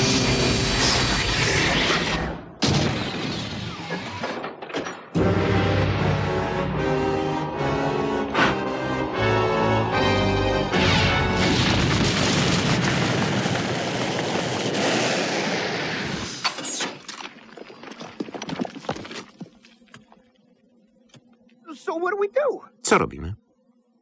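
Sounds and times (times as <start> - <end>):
dramatic soundtrack music: 5.2 - 11.9
loud explosion-like blast: 10.7 - 16.4.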